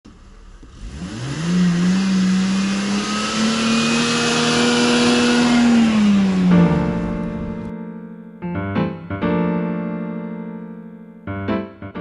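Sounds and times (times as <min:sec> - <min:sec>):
car engine revving: 0:00.1 - 0:07.7.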